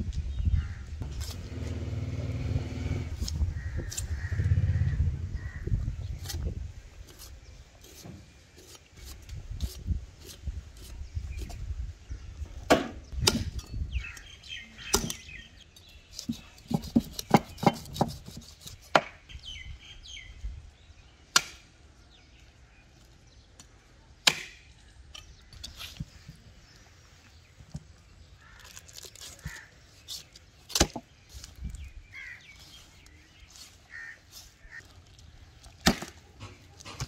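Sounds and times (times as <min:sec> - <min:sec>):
knife chopping through carcass: 0:14.8 - 0:15.3, 0:28.9 - 0:31.5, 0:35.7 - 0:37.0.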